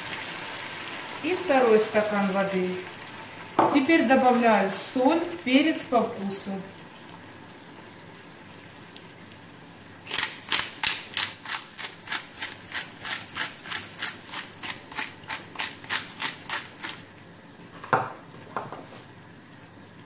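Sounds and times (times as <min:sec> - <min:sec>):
pepper mill grinding: 0:10.0 - 0:17.1.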